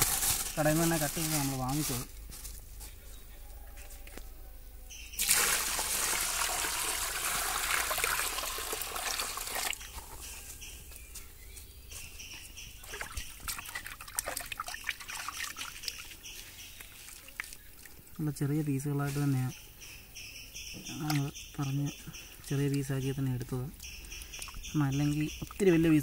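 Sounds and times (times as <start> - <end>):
water pouring into metal basin: 5.2 - 9.9
water splashing and dripping: 5.2 - 10.2, 12.8 - 18.0, 24.2 - 26.0.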